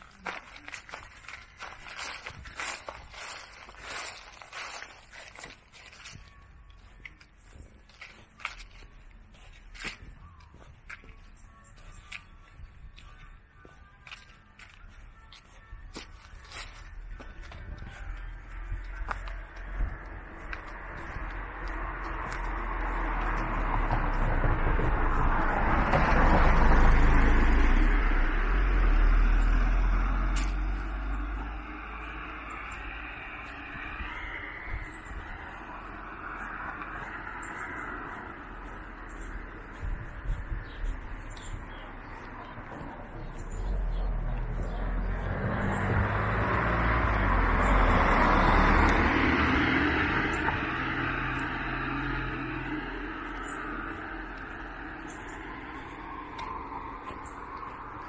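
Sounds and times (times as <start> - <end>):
steady low rumble: 16.6 - 47.7
car passing: 16.8 - 58.0.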